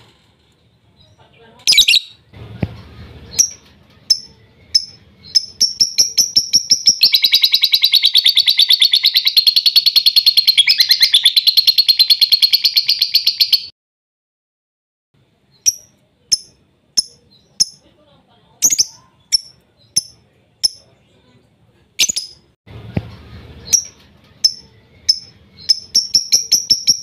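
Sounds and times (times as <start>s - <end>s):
lovebird chirping and trilling: 1.0s - 2.3s, 3.2s - 13.7s, 15.5s - 17.9s, 18.6s - 21.0s, 22.0s - 22.5s, 23.6s - 27.0s.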